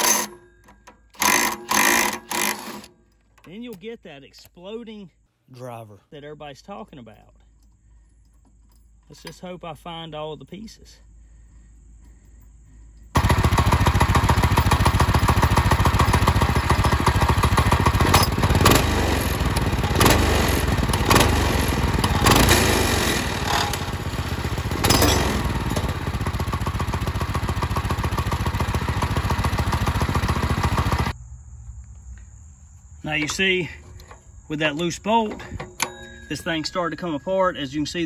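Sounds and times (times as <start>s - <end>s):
small engine running: 0.0s - 0.4s, 1.2s - 2.9s, 13.1s - 31.2s.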